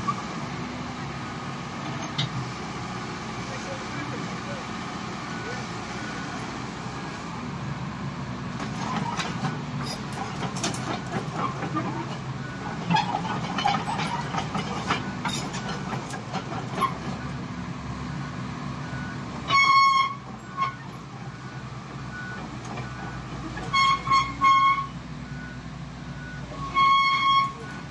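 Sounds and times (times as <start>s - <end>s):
excavator diesel engine running: 0.0s - 27.9s
horn tooting: 19.5s - 20.8s, 23.7s - 25.0s, 26.6s - 27.8s.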